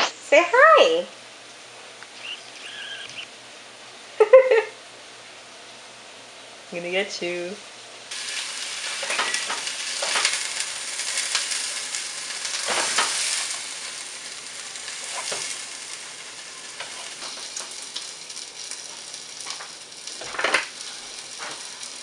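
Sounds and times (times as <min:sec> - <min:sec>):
meat sizzling in a frying pan: 0:08.1 - 0:22.0.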